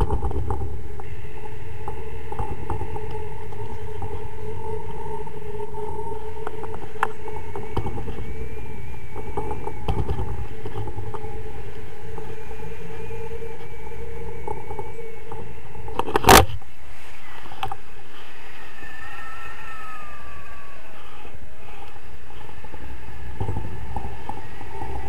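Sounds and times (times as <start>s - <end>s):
wind rushing over microphone: 0.0s - 25.0s
small clicks: 12.1s - 16.6s.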